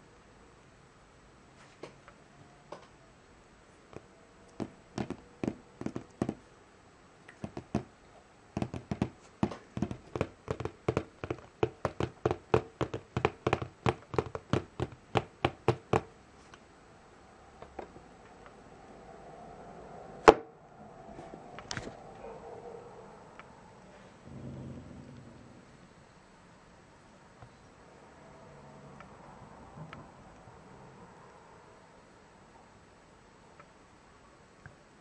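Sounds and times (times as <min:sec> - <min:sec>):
fingertips tapping on plastic wrap: 0:03.9 - 0:06.4, 0:07.3 - 0:07.9, 0:08.6 - 0:16.1.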